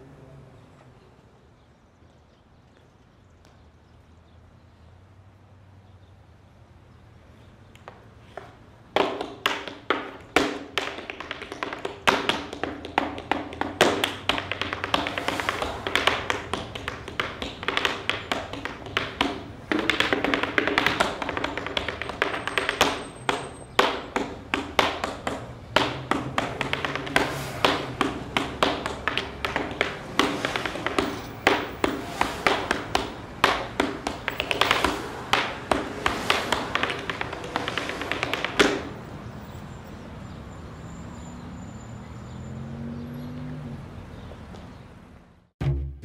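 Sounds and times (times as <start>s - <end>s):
tap shoes on wooden board: 7.8s - 39.1s.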